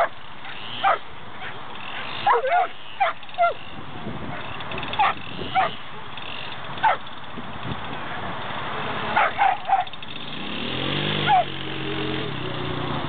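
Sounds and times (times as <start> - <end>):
dog barking: 0.8 - 1.6, 2.2 - 3.6, 4.3 - 5.8, 6.8 - 7.0, 9.2 - 9.9, 11.3 - 11.5.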